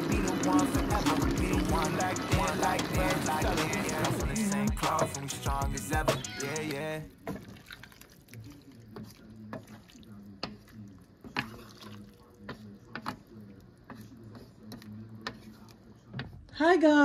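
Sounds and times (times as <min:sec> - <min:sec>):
curry simmering and bubbling: 0:07.1 - 0:16.2.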